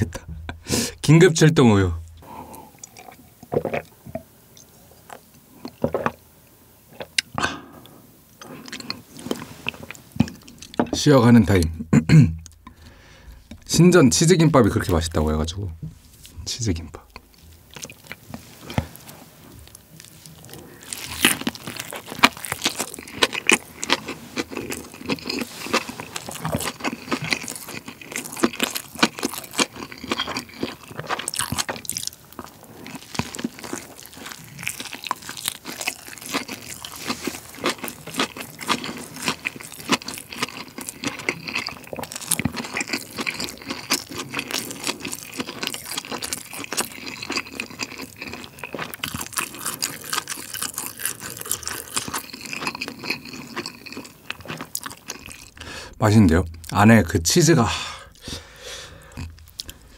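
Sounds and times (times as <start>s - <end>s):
biting and chewing food: 17.0s - 56.8s, 58.1s - 59.9s.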